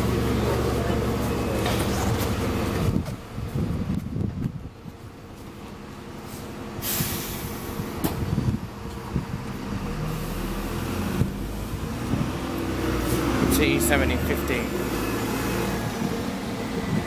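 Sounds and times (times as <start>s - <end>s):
bus diesel engine running: 0.0s - 17.0s
air hiss: 6.8s - 7.8s.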